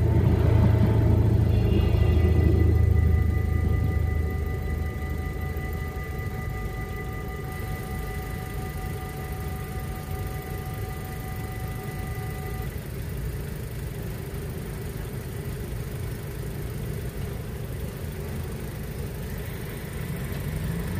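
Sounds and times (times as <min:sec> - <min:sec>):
level crossing bells ringing: 0:00.0 - 0:12.7
car engine pulling away: 0:00.0 - 0:20.9
car engines idling: 0:00.0 - 0:20.9.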